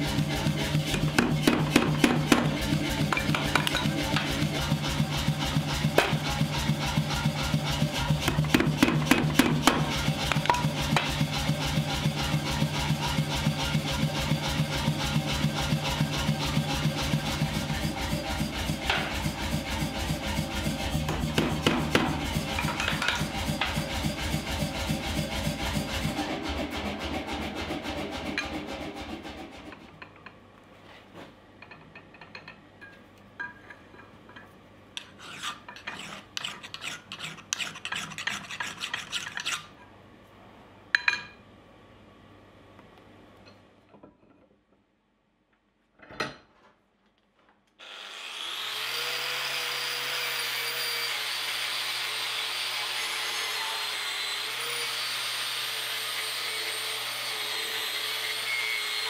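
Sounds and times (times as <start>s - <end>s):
angle grinder whining: 47.8s - 59.0s.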